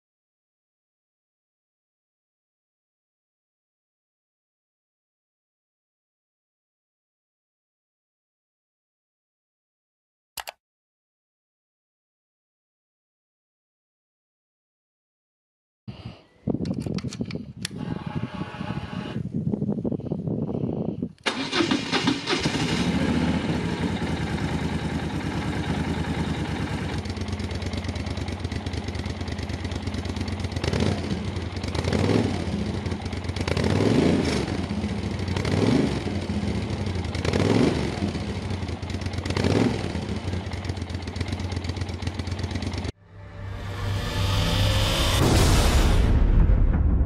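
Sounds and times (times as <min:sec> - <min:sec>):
motorcycle throttle blips: 0:22.3 - 0:42.9
motorcycle engine idling: 0:22.5 - 0:42.9.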